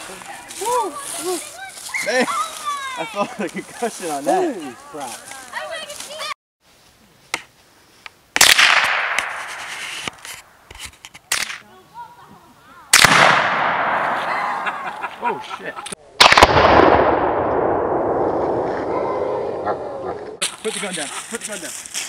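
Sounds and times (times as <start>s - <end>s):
rifle shot: 8.4s - 9.8s, 12.9s - 14.7s, 16.2s - 18.9s
explosion with rumbling echo: 16.2s - 19.7s.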